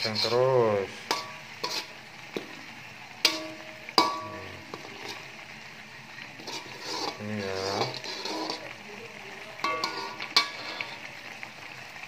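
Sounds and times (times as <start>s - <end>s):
spatula scraping: 0.0s - 2.5s, 3.2s - 5.3s, 6.4s - 8.7s, 9.6s - 11.1s
spice paste sizzling in a wok: 0.0s - 12.0s
spatula knocking on wok: 3.3s - 4.9s.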